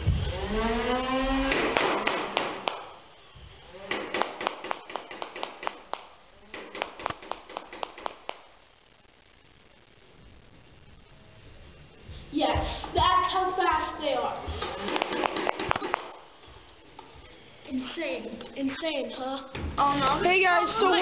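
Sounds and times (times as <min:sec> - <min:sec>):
motor whir: 0:00.0 - 0:01.8, 0:14.4 - 0:17.0
toy blaster firing darts: 0:01.4 - 0:03.0, 0:03.8 - 0:08.4, 0:14.6 - 0:16.2.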